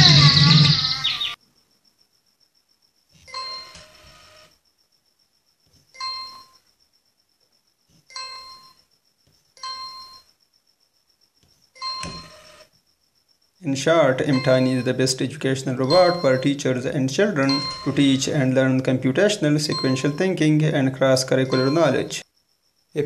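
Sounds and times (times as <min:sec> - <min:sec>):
electronic ding-dong chimes: 0:14.3 - 0:15.0, 0:15.8 - 0:16.6, 0:17.4 - 0:18.4, 0:19.6 - 0:20.3, 0:21.4 - 0:22.2.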